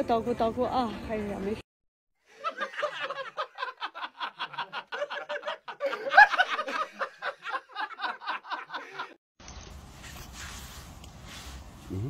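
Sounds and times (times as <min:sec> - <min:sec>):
person laughing: 0:02.6 - 0:09.2.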